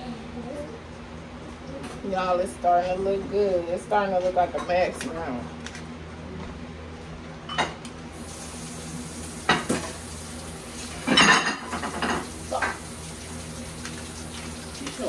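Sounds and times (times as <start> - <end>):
utensils and dishes clinking: 11.0 - 12.8
dishes clattering: 11.1 - 12.8.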